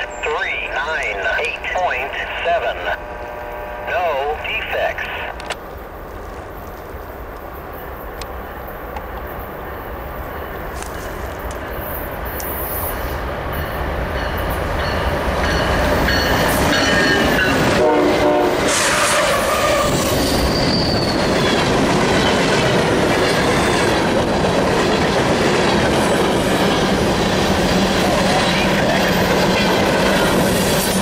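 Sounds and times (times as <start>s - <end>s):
diesel locomotives passing: 0.0s - 31.0s
train horn: 17.1s - 20.1s
wheel squeal: 18.8s - 21.4s.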